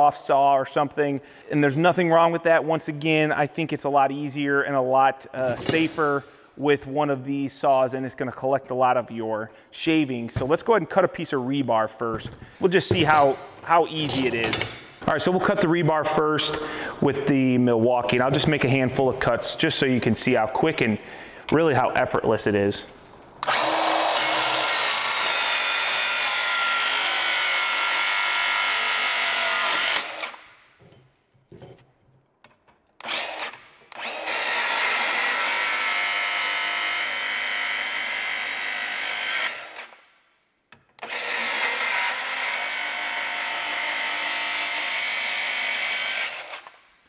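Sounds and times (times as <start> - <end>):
circular saw cutting steel: 23.4 - 30.4, 33.0 - 40.0, 41.0 - 46.7.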